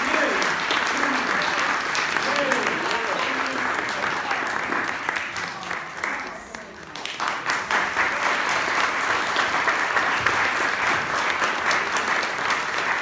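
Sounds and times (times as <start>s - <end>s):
audience applauding: 0.0s - 13.0s.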